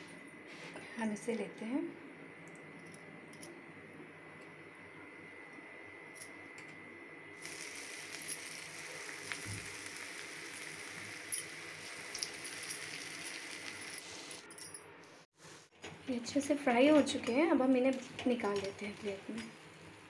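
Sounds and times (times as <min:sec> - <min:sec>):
deep-frying sizzle with crackles: 0:07.4 - 0:14.3, 0:15.4 - 0:20.0.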